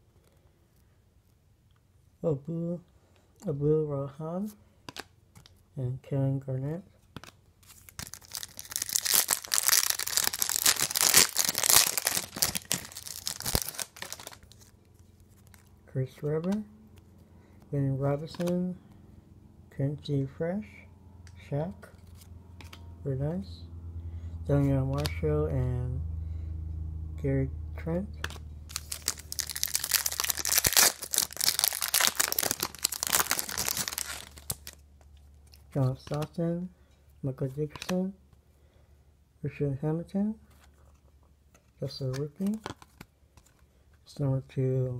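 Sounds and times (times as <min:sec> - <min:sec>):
foil wrapper tearing and crinkling: 0:07.7 - 0:14.7, 0:28.7 - 0:34.8.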